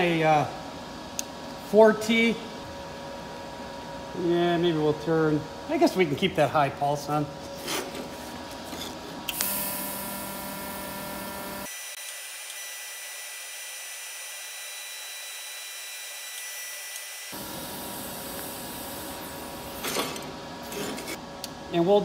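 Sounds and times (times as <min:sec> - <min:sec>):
welding arc hissing: 0:09.4 - 0:19.8.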